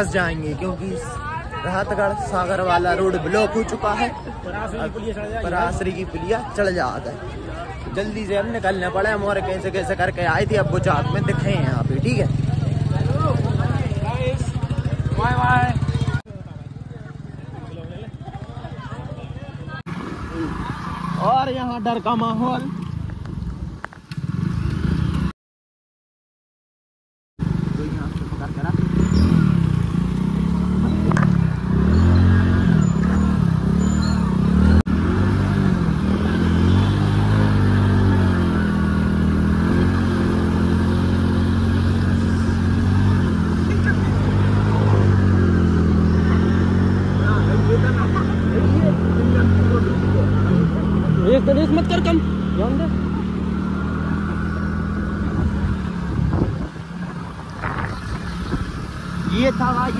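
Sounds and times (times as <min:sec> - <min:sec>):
motorcycle engine running: 0:10.4 - 0:19.8.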